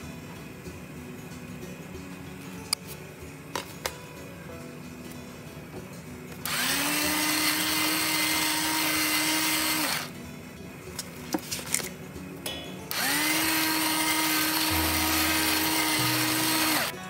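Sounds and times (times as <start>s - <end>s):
electric salt grinder motor: 6.4s - 10.1s, 12.9s - 17.0s.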